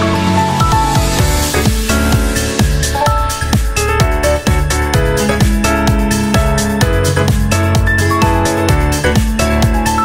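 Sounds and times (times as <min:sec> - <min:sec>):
electronic dance music: 0:00.0 - 0:10.0
kick drum beat: 0:00.4 - 0:10.0.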